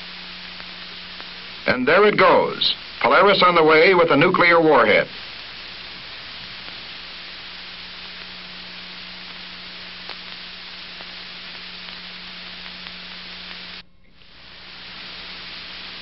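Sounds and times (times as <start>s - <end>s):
film soundtrack hiss and hum: 0.0s - 16.0s.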